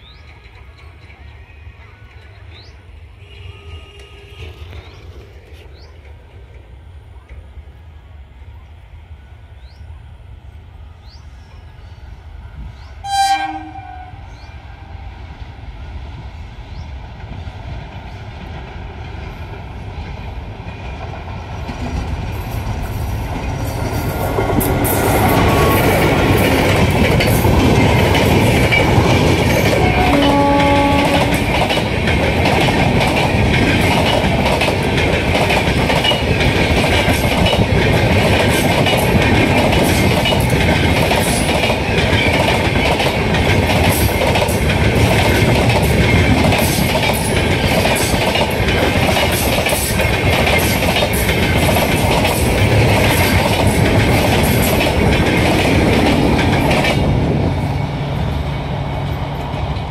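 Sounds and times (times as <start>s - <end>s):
train heavy rumble: 0.0s - 59.9s
train horn blast: 3.2s - 4.8s, 13.0s - 14.9s, 29.7s - 31.6s
wheels clacking over rail joints: 17.8s - 58.2s.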